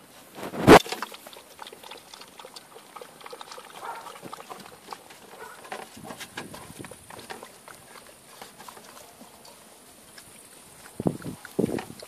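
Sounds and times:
puppy crunching dry kibble: 0.4 - 12.0
paws scrambling on wire mesh: 2.6 - 12.0.

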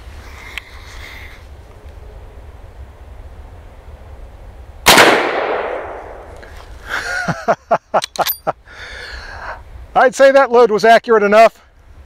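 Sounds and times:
rifle shot with echo: 4.8 - 6.3.

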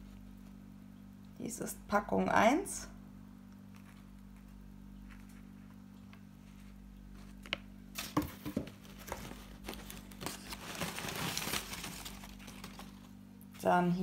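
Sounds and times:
steady low hum: 0.0 - 14.0
newspaper rustling and crinkling: 6.4 - 13.2.

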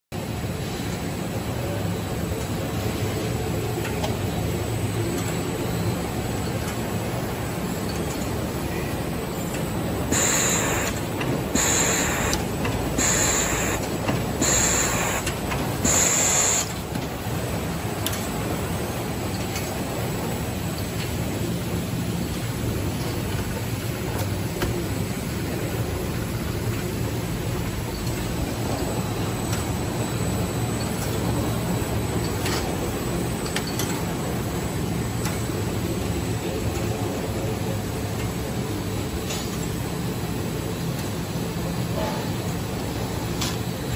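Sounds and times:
packing machine humming and whirring: 0.2 - 43.9
packing machine running: 9.4 - 19.7.

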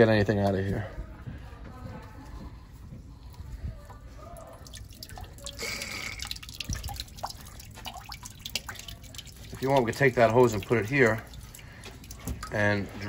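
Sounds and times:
water dripping into a bucket: 0.0 - 0.8, 3.2 - 13.0
spurt of water: 2.6 - 13.0.

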